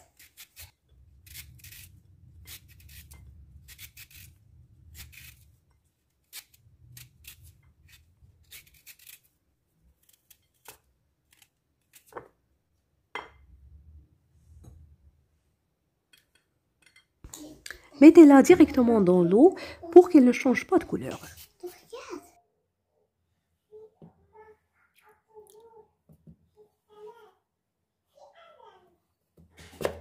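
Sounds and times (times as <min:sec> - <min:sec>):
peeler scraping potato skin: 0:00.0 - 0:12.2.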